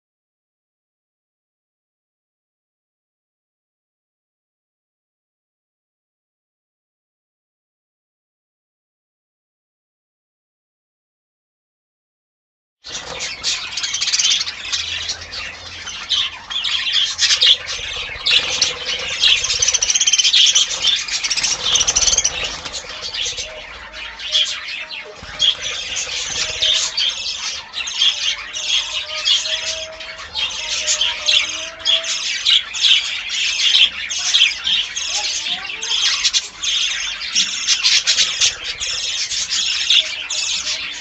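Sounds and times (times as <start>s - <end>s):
flock of budgerigars chattering: 12.9s - 41.0s.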